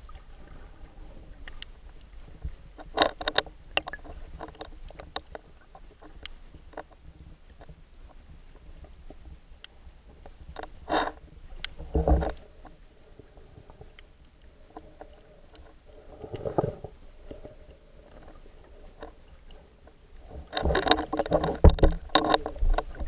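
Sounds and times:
water sloshing and bubbling underwater: 0:00.0 - 0:23.0.

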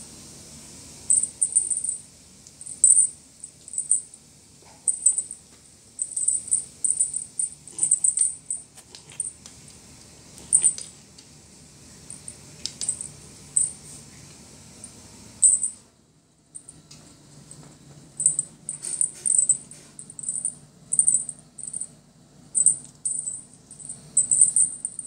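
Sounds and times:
cat toy rattling: 0:01.1 - 0:02.0, 0:04.8 - 0:05.4, 0:06.0 - 0:09.4, 0:10.4 - 0:11.0, 0:15.4 - 0:15.8, 0:18.2 - 0:21.9, 0:22.6 - 0:25.0.

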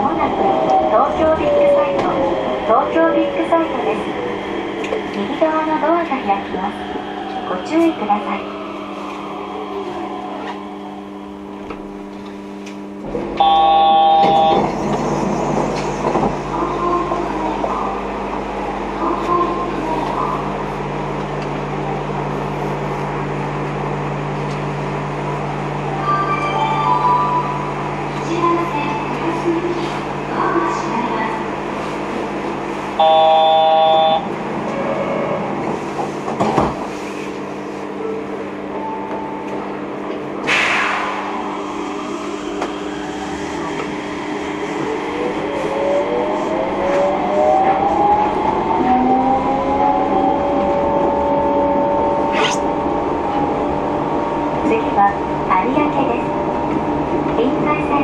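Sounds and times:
train rolling noise: 0:00.0 - 0:58.0
electronic buzzer chord: 0:13.4 - 0:14.5, 0:33.0 - 0:34.2.

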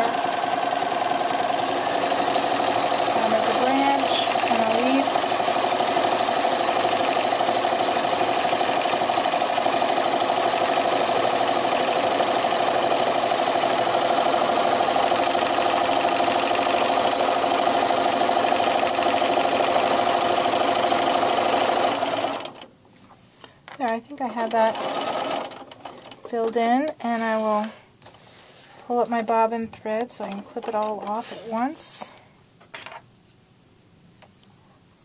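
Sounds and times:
sewing machine running: 0:00.0 - 0:22.7, 0:24.4 - 0:26.6.

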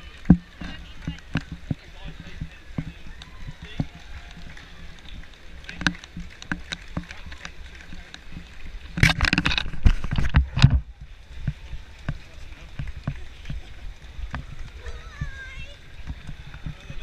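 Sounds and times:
footfalls of running crowd: 0:00.0 - 0:17.0
knocking and rubbing on camera: 0:09.0 - 0:10.9.

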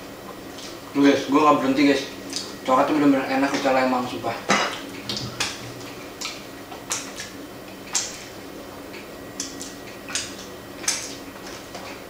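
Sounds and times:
wet chewing smacks and clicks: 0:08.9 - 0:11.6.

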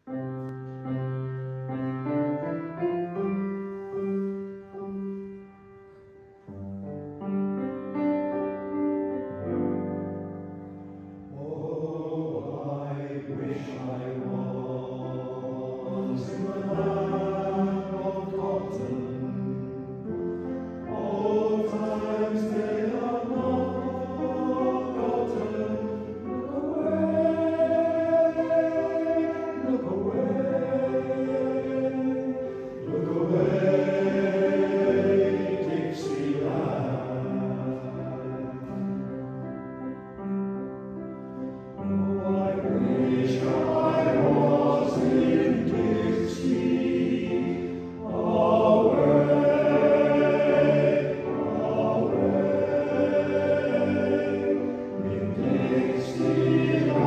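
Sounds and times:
male voice choir singing: 0:11.3 - 0:20.2, 0:20.8 - 0:39.1, 0:41.9 - 0:57.0.

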